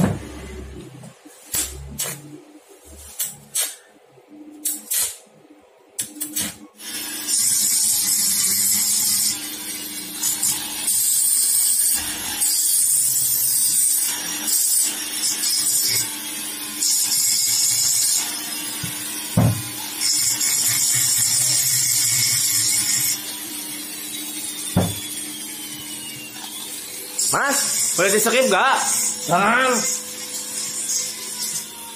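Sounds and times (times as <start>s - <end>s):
rotary grinder grinding metal: 6.8s - 31.9s.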